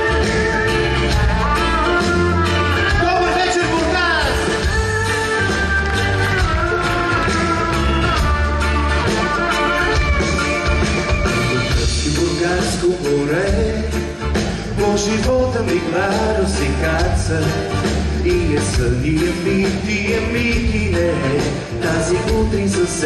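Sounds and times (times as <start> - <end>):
live band playing: 0.0 - 23.0
man singing: 11.4 - 23.0.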